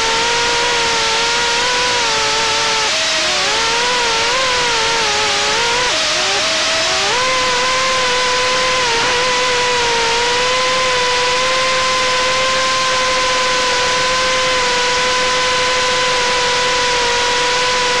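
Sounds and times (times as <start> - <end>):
drone propellers buzzing: 0.0 - 18.0.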